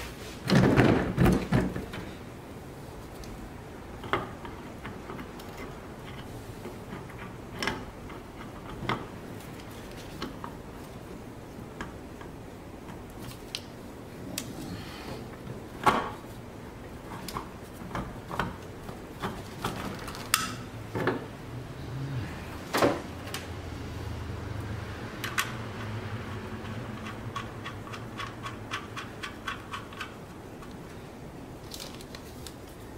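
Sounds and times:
faint low hum: 0:06.9 - 0:32.9
metal clicks and knocks: 0:25.2 - 0:30.8.

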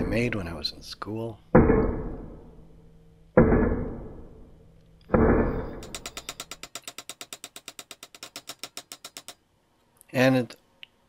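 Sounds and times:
hammer striking steel axle: 0:01.6 - 0:02.7, 0:05.1 - 0:09.4.

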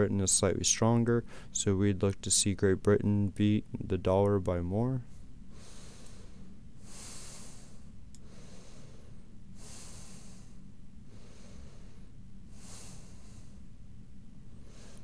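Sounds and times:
steady low hum: 0:00.0 - 0:15.0
man breathing: 0:01.2 - 0:01.6, 0:05.1 - 0:13.8, 0:14.5 - 0:15.0.

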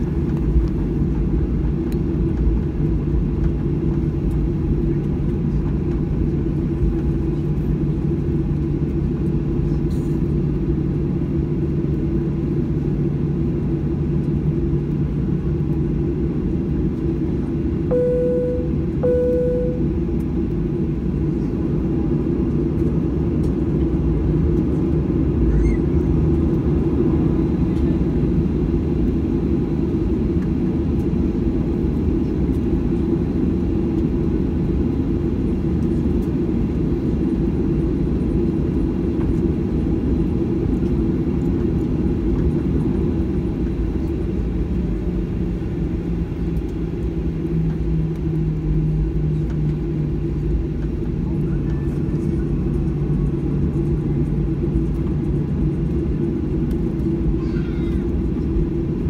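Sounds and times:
jet engine cabin rumble: 0:00.0 - 0:59.0
low steady hum: 0:17.7 - 0:20.7.

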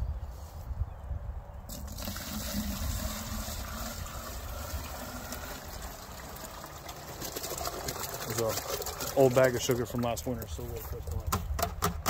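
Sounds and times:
water pouring into bucket: 0:01.7 - 0:10.1.

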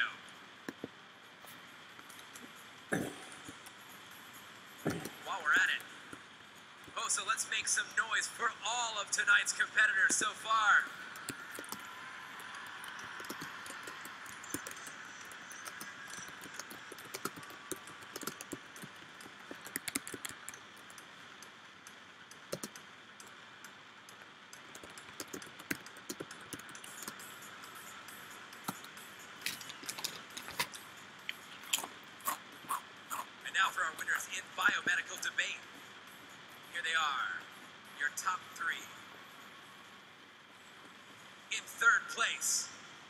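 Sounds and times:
faint background noise: 0:00.0 - 0:43.0
keyboard typing: 0:04.8 - 0:05.9, 0:10.9 - 0:21.1, 0:22.3 - 0:23.4, 0:24.1 - 0:32.4.

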